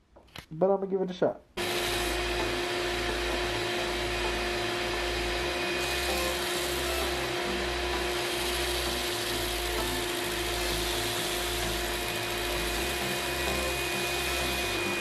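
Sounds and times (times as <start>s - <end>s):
sandpaper hissing on spinning wood: 1.6s - 15.0s
wood lathe humming: 1.6s - 15.0s.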